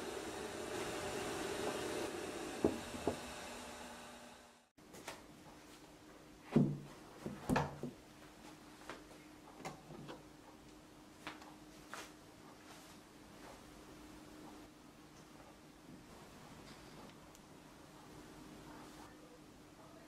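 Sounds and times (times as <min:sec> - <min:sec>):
steamer thudding on table: 0:02.6 - 0:03.3.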